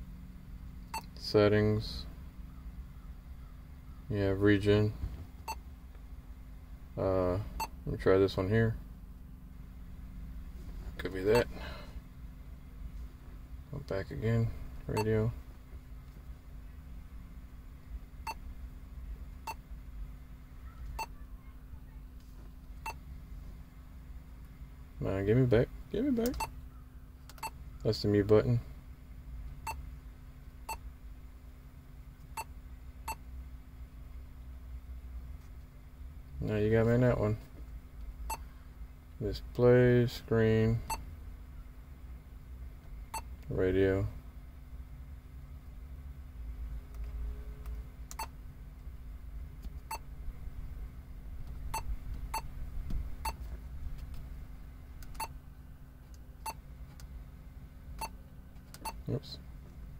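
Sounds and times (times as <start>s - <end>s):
low steady hum: 0.0s - 59.9s.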